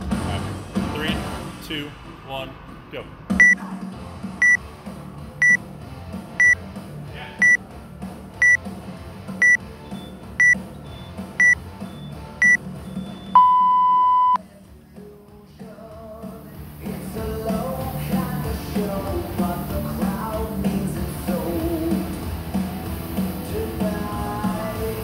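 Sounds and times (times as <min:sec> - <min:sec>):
long lower beep: 0:07.4 - 0:07.6, 0:09.4 - 0:14.4
short high timer beeps: 0:07.4 - 0:07.6, 0:10.4 - 0:10.6, 0:11.4 - 0:11.6, 0:13.3 - 0:14.4.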